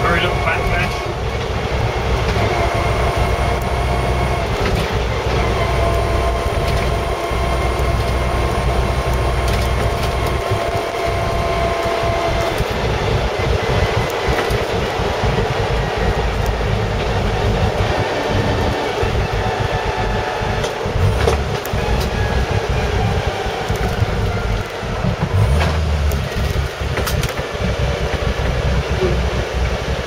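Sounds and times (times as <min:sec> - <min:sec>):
engine and drivetrain rumble: 0:00.0 - 0:30.0
road noise: 0:00.0 - 0:30.0
steady whine: 0:00.0 - 0:30.0.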